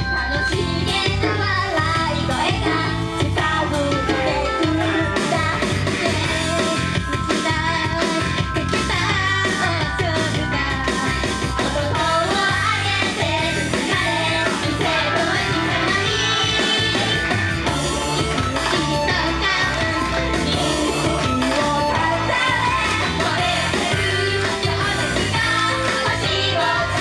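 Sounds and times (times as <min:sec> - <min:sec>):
women singing pop song: 0:00.0 - 0:17.4, 0:18.2 - 0:27.0
rock band playing: 0:00.0 - 0:27.0.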